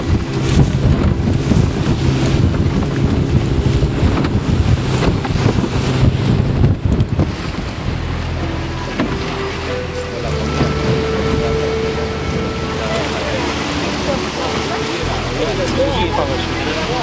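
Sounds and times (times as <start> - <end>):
choppy water rushing: 0.0 - 17.0
motor boat engine droning: 0.0 - 17.0
wind buffeting microphone: 0.0 - 17.0.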